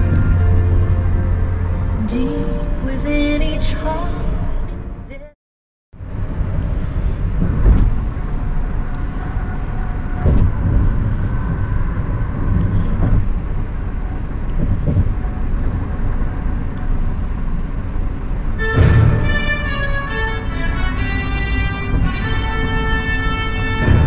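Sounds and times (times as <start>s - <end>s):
car cabin road rumble: 0.0s - 5.3s, 6.0s - 24.0s
music on car stereo: 0.0s - 5.3s.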